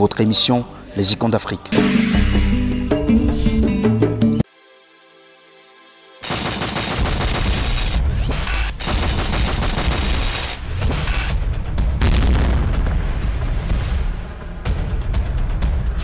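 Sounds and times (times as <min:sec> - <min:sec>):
loud percussive music: 0:01.7 - 0:04.4, 0:06.2 - 0:16.0
musical phrase: 0:01.7 - 0:04.4.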